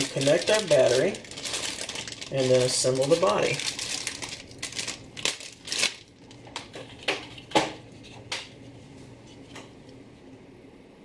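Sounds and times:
plastic crinkling and clicking: 0:00.0 - 0:07.6.

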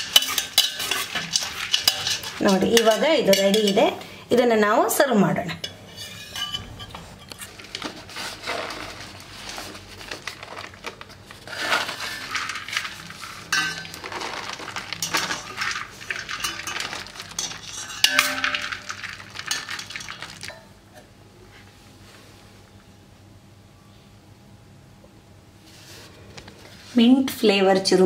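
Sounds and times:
puffed rice rustling: 0:00.0 - 0:03.6, 0:06.6 - 0:20.5
metal spatula scraping steel pot: 0:00.0 - 0:04.0, 0:05.5 - 0:09.7, 0:11.5 - 0:20.6.

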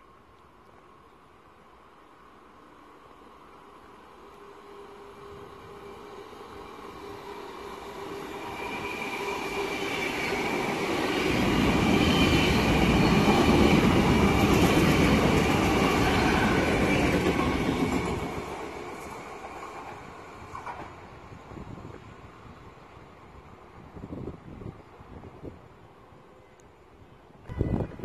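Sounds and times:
electric train passing: 0:00.9 - 0:26.4
wheel and track noise: 0:04.0 - 0:21.1.

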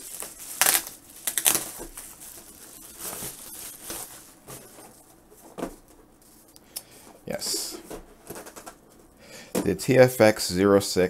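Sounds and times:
bubble wrap crinkling: 0:00.0 - 0:06.5.

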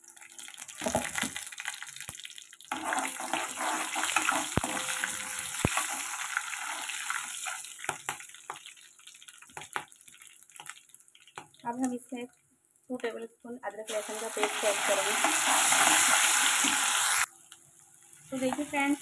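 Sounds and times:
spices sizzling in hot oil: 0:00.0 - 0:19.0.

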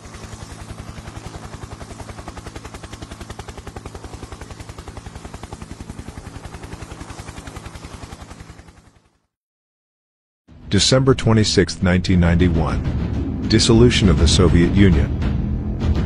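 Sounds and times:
rapid pulsing rattle: 0:00.0 - 0:09.1
low hum: 0:10.7 - 0:16.0.

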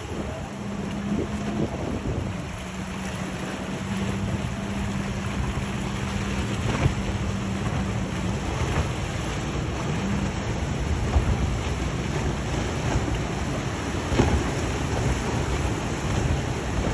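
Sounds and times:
motorboat engine drone: 0:00.0 - 0:16.9
rush of boat wake: 0:00.0 - 0:16.9
wind buffeting microphone: 0:00.0 - 0:16.9.

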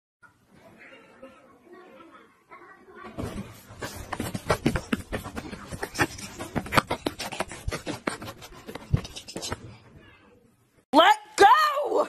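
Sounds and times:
cat scrambling on blanket: 0:03.2 - 0:09.5.

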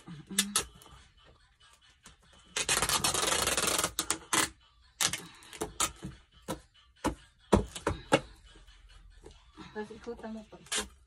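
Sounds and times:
tape rubbed onto cardboard: 0:02.6 - 0:04.4
packing tape pulled off roll: 0:02.6 - 0:05.9.

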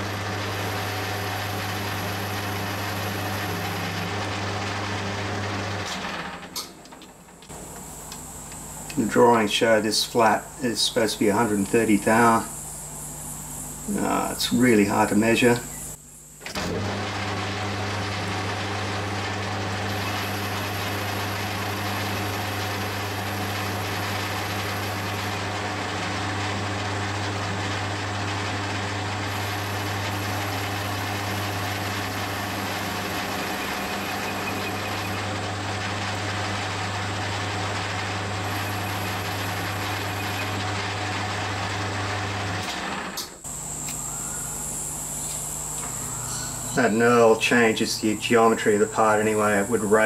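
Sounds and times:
lathe tool cutting steel: 0:00.0 - 0:06.5, 0:16.5 - 0:44.0
metal lathe motor hum: 0:00.0 - 0:50.0.

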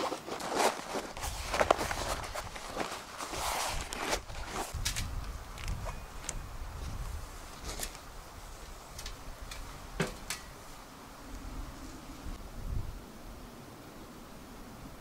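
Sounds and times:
metal chimney pipe clinking: 0:08.9 - 0:10.6.

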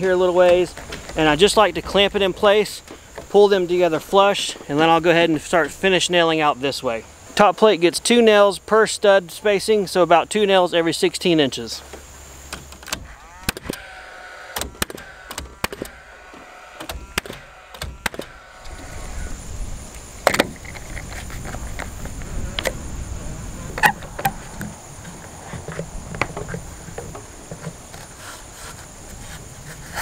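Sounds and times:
nailer fan whirring: 0:12.4 - 0:30.0
nail gun shots: 0:12.8 - 0:13.8, 0:14.6 - 0:16.0, 0:16.8 - 0:18.4.

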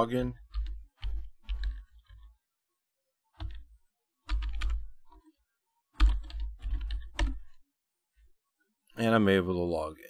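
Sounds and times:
typing on computer keyboard: 0:00.4 - 0:02.3, 0:03.3 - 0:05.3, 0:05.9 - 0:07.6.

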